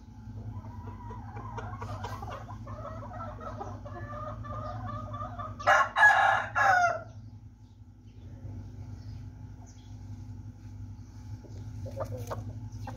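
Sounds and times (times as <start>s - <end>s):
chickens clucking: 0.0s - 12.9s
rooster crowing: 2.8s - 7.2s.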